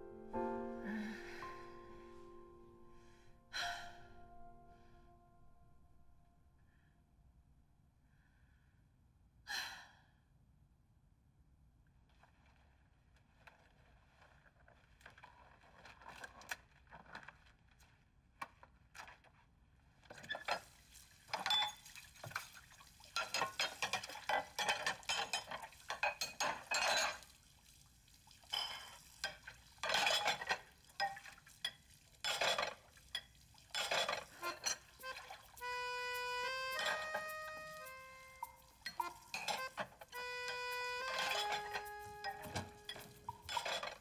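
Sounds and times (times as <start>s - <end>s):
dishes and utensils clattering: 20.2s - 22.5s, 23.1s - 27.3s, 28.5s - 35.8s, 36.4s - 44.0s.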